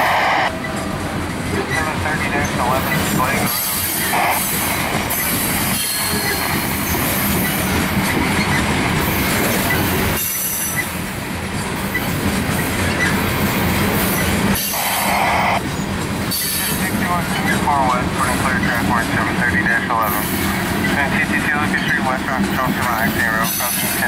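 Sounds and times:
freight train wheels on rails: 0.0s - 24.0s
train wheel squeal: 1.7s - 11.0s, 11.6s - 17.6s, 22.8s - 24.0s.

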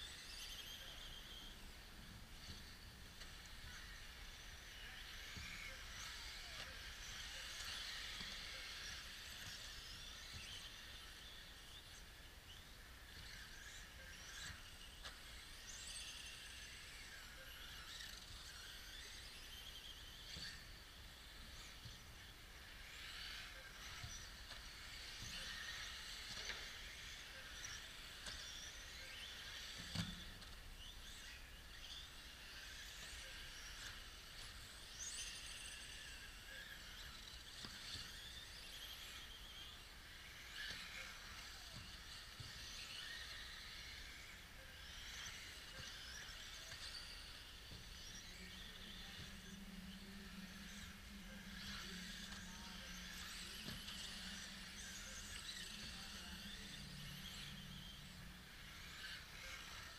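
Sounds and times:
rc car motors whining: 0.0s - 59.9s
low steady hum: 43.4s - 59.9s.

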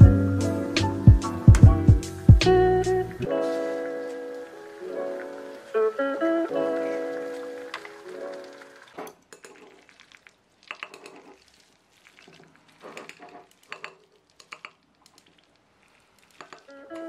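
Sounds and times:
chopsticks clicking and scraping bowl: 7.7s - 17.0s.

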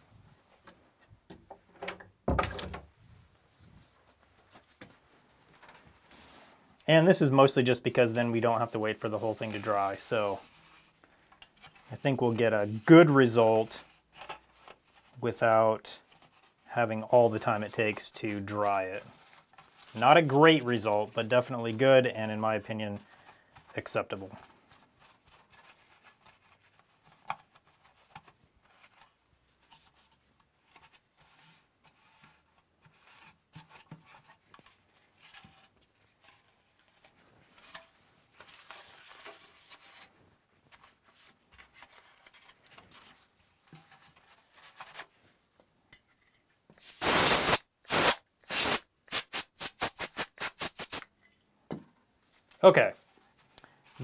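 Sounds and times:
compressed air blasts: 46.8s - 51.0s
paper towel scrubbing plastic: 46.9s - 51.0s.

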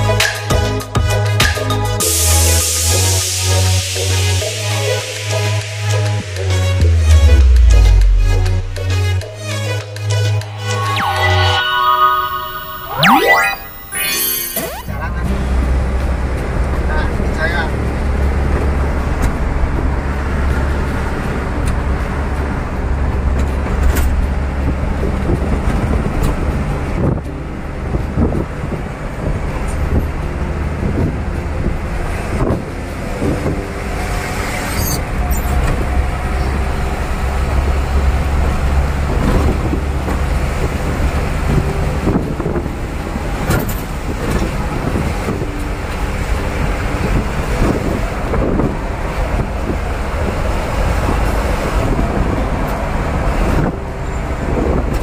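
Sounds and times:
diesel engine drone: 5.2s - 25.6s.

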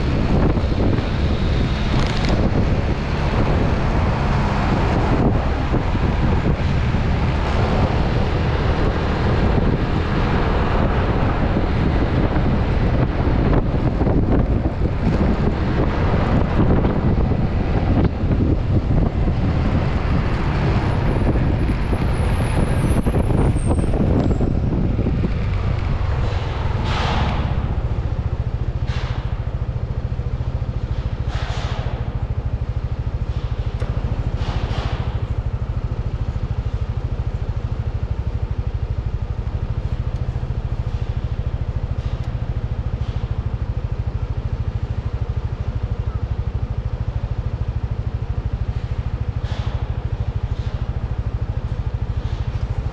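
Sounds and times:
wind rushing over microphone: 0.0s - 43.2s
scooter engine idling: 35.0s - 52.9s.

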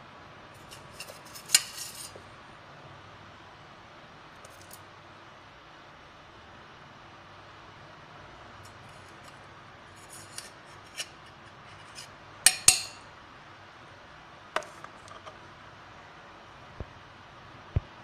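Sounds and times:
steel spoon clinking on steel jar: 12.5s - 13.1s.

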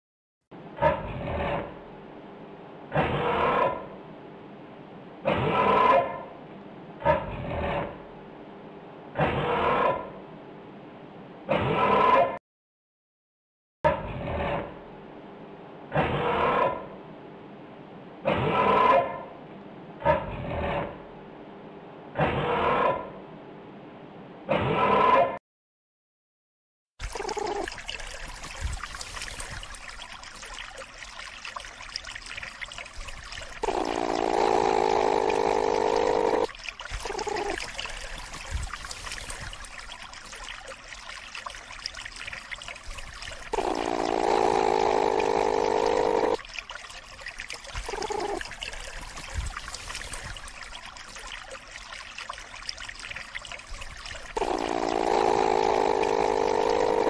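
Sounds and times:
platypus growling: 33.6s - 37.8s, 43.5s - 46.4s, 47.8s - 48.5s, 54.3s - 57.0s.

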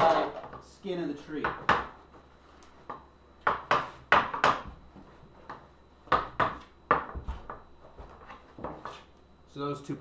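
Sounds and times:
wood knocking and scraping on wood: 2.8s - 9.2s.

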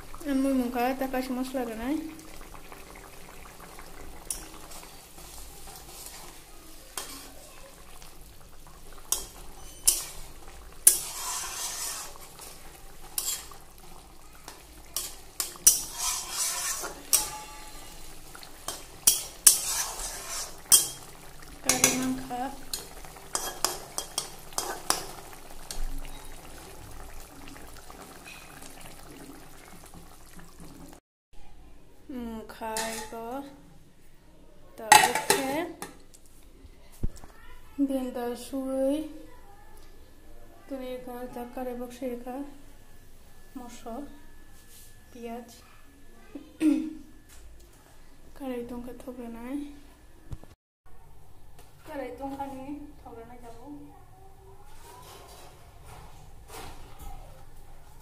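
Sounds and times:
curry sizzling: 0.0s - 31.0s, 32.4s - 33.7s, 34.8s - 47.3s
metal spatula scraping a pan: 4.3s - 7.5s, 9.1s - 13.8s, 14.9s - 21.1s, 21.7s - 25.1s, 32.7s - 33.2s.

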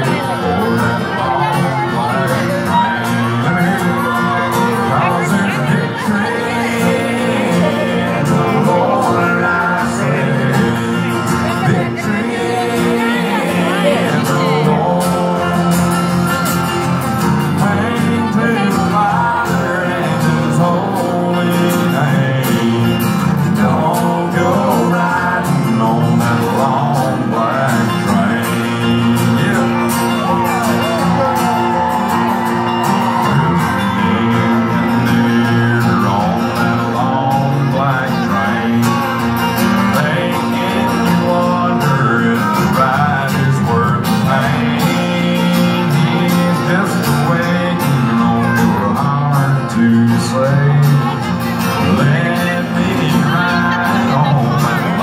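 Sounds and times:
band playing guitars: 0.0s - 55.0s
man singing: 0.0s - 55.0s.

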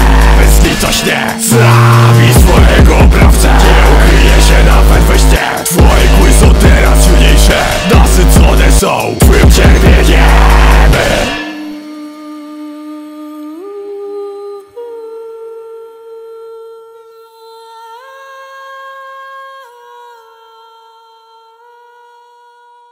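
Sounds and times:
heavy trap beat: 0.0s - 11.6s.

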